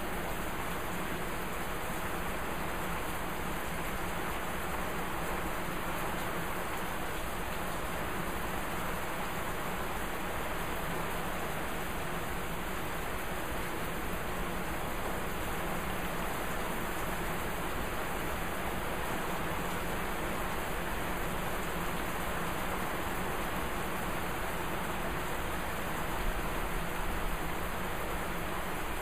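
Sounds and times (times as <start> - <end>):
rain falling steadily: 0.0 - 29.0.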